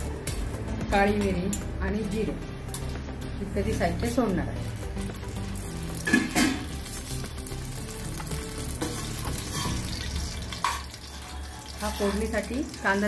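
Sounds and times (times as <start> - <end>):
background music: 0.0 - 13.0
spices sizzling in hot oil: 0.2 - 13.0
metal spoon stirring against pot: 8.7 - 13.0.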